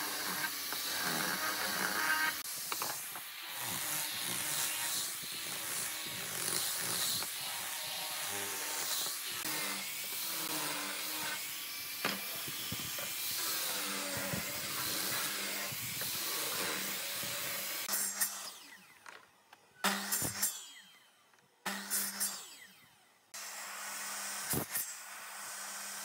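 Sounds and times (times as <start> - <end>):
angle grinder sanding wood: 0.0 - 18.8.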